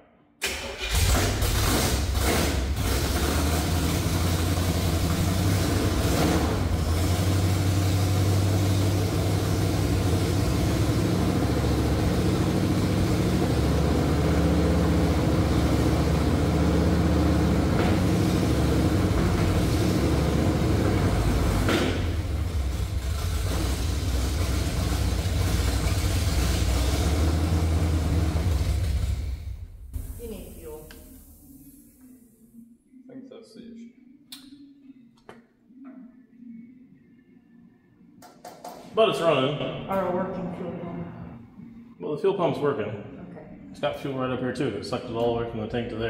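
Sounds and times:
truck engine with open exhaust: 1.6s - 31.3s.

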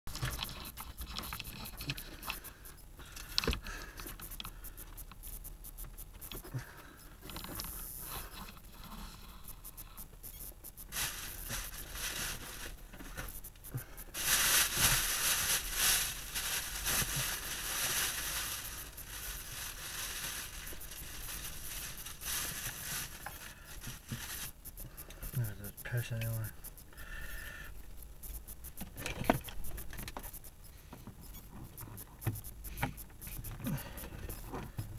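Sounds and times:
small clicks and knocks: 0.1s - 6.5s
rustling handling noise: 9.7s - 26.6s.

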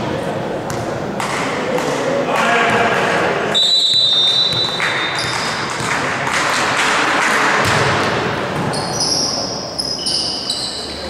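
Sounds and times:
sneakers squeaking on hardwood: 4.0s - 5.7s, 8.6s - 11.0s.

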